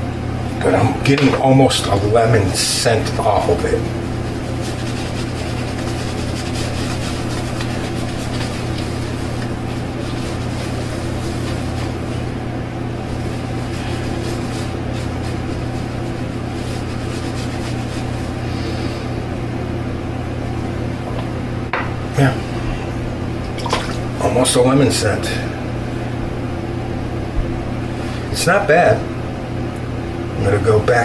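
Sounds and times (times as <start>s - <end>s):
low mechanical hum: 0.0s - 31.0s
shaving brush swishing: 3.3s - 12.4s, 13.0s - 19.1s.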